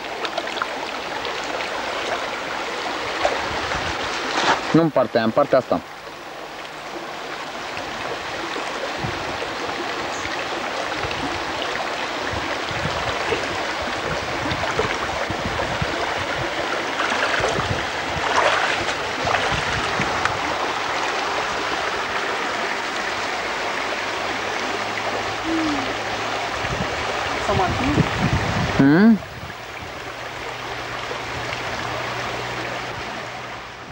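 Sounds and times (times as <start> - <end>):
splashing and sloshing from wading: 0.0 - 4.8, 10.9 - 22.7
flowing water rushing: 0.0 - 33.9.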